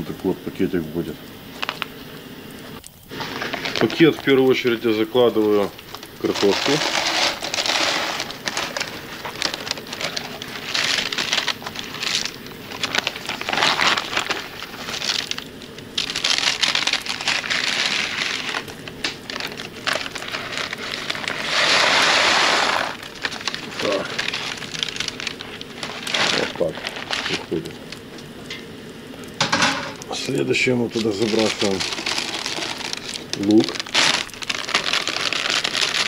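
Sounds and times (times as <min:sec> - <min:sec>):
dried potato rattling into plastic bag: 0:05.2 - 0:15.4, 0:16.0 - 0:27.7, 0:30.9 - 0:36.0.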